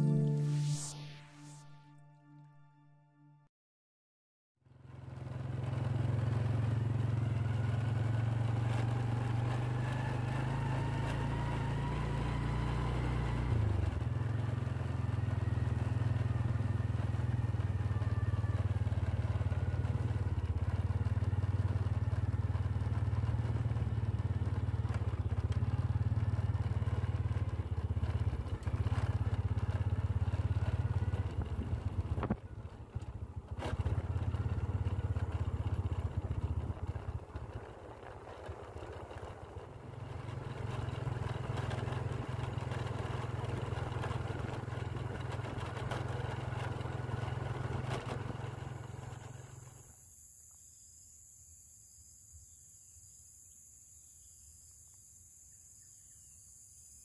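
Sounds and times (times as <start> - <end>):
motorcycle engine running: 4.6 - 50.1.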